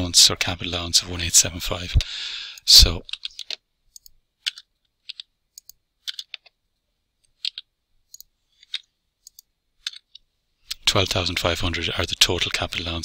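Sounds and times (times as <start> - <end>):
keyboard typing: 3.0 - 6.6, 7.2 - 10.8.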